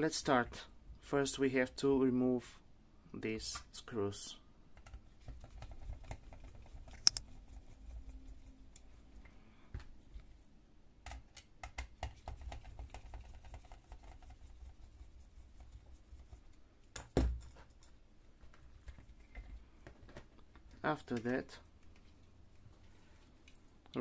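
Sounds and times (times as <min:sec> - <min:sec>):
screwdriver scratching and clicking: 0:06.9 - 0:07.2
sharp click: 0:07.0 - 0:07.2.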